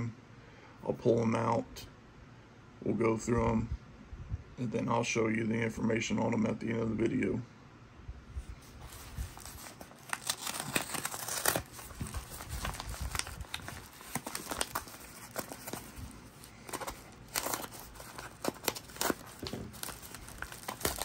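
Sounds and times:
paper envelope crinkling and tearing: 8.6s - 21.0s.

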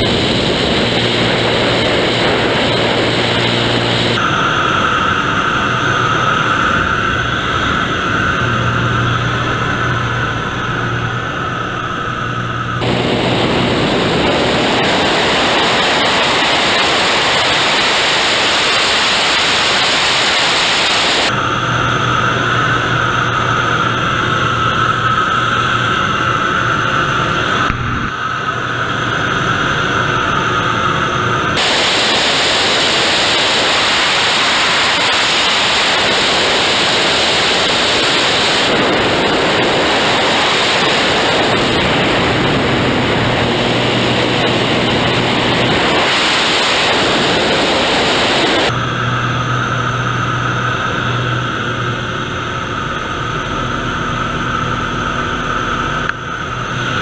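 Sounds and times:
wind rushing: 0.0s - 4.2s, 12.8s - 21.3s, 31.6s - 48.8s
plane engine droning: 0.0s - 57.0s.

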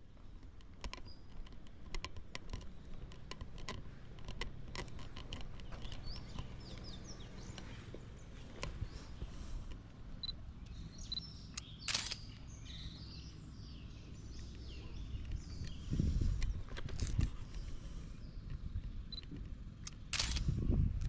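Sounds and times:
birds chirping: 0.0s - 20.4s
sharp click: 10.6s - 12.4s, 19.1s - 20.5s.

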